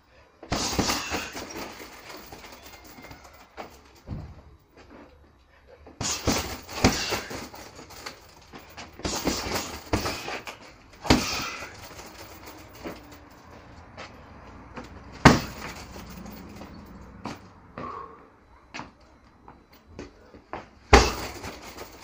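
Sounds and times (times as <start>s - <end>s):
boxing gloves hitting a punching bag: 0.5s - 4.4s, 6.0s - 13.2s, 14.8s - 17.4s, 20.9s - 22.0s.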